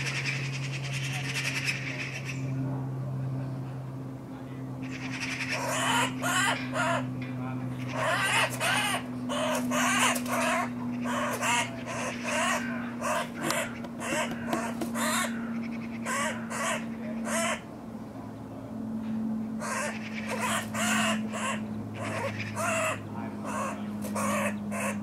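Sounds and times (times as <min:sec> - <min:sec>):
magpie chattering calls: 0:04.8 - 0:07.1, 0:07.8 - 0:17.7, 0:19.6 - 0:25.0.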